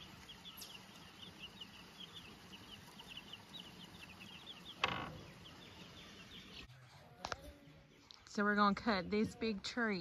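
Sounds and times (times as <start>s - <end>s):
baby chicks peeping: 0.0s - 6.7s.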